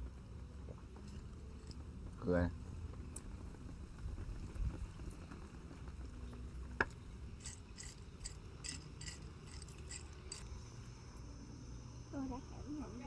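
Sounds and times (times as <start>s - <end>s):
ice clinking in a cup: 7.4s - 10.5s.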